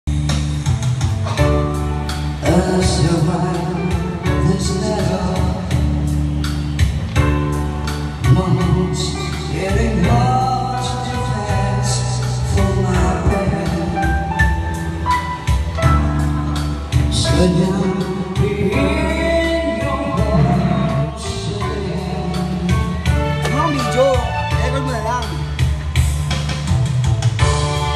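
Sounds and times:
karaoke backing track: 0.1s - 27.9s
man singing into microphone: 2.4s - 6.4s, 8.2s - 14.7s, 17.1s - 25.3s.

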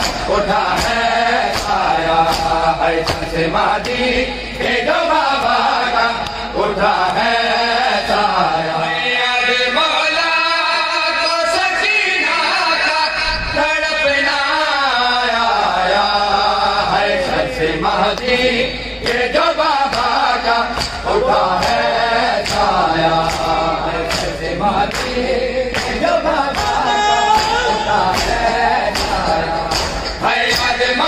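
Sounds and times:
chest-beating slaps: 0.0s - 4.1s, 19.9s - 26.8s, 27.4s - 30.8s
men chanting over loudspeakers: 0.0s - 31.0s.

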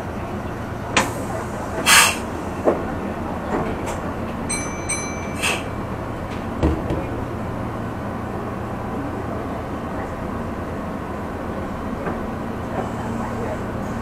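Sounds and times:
train wheels and motors rumbling: 0.0s - 14.0s
short hiss: 1.8s - 2.3s.

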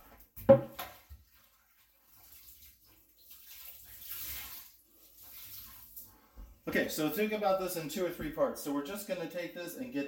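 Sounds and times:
water splashing in a sink: 0.0s - 6.6s.

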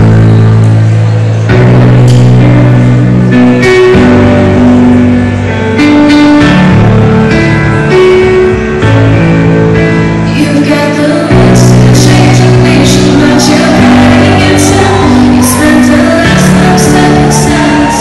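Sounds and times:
accompaniment with bass notes: 0.0s - 18.0s
woman singing into microphone: 10.3s - 18.0s.

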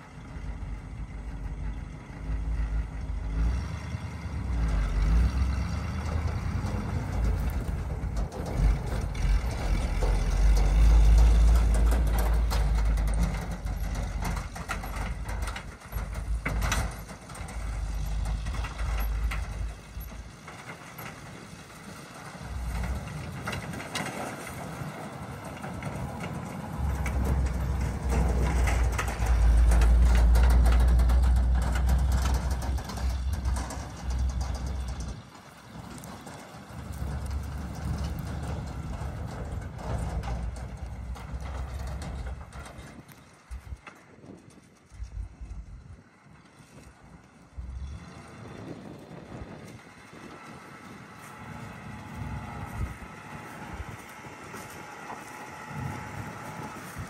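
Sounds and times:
truck engine rumbling: 0.0s - 57.0s.

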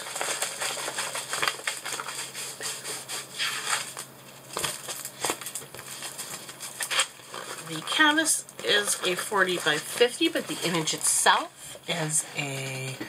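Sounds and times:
plastic film crinkling: 0.0s - 12.9s.

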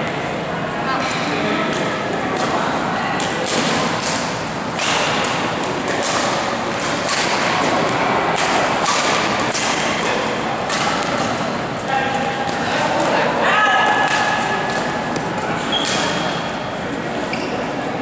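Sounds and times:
rackets hitting shuttlecock: 3.2s - 11.7s, 13.8s - 16.4s.

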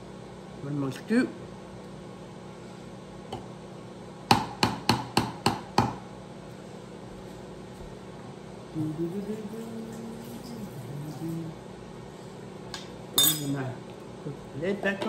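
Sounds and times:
metal spoon tapping glass bowl: 13.2s - 13.6s.

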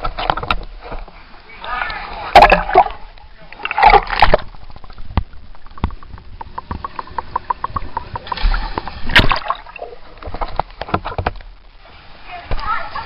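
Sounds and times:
underwater pool water sloshing: 0.0s - 13.0s
water splash: 1.7s - 12.7s
small underwater ticks and clicks: 2.8s - 11.8s.

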